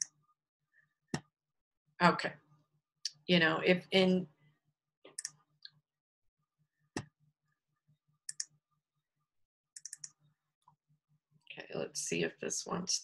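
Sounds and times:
computer mouse clicks: 0:05.1 - 0:05.4, 0:08.3 - 0:08.6, 0:09.8 - 0:10.2.

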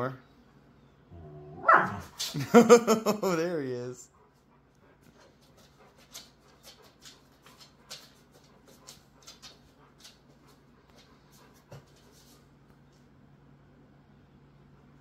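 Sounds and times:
dog claws clicking on wooden floor: 0:05.1 - 0:11.1.

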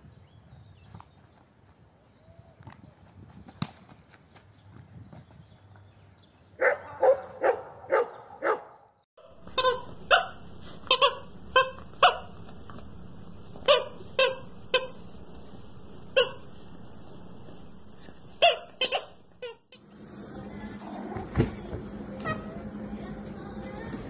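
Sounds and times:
dog barking: 0:06.6 - 0:08.8, 0:10.1 - 0:11.2, 0:12.0 - 0:12.4, 0:18.4 - 0:19.2.

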